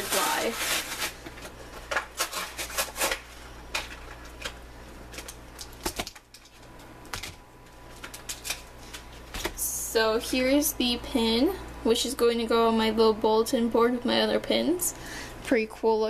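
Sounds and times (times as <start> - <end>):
packaging crackling and clicking: 0.0 - 9.6.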